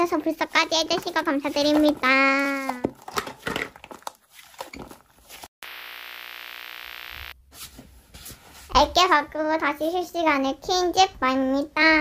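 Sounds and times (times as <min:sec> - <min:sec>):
tv static hiss: 0:05.6 - 0:07.4.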